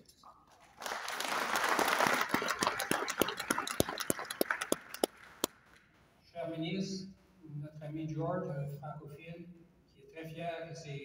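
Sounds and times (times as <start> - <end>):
audience applauding: 0.6 - 5.6.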